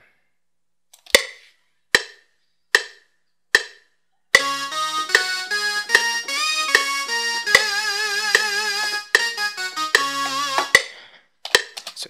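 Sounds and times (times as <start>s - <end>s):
metronome clicks: 2.7s - 10.9s
synthesizer notes and chords: 4.4s - 10.9s.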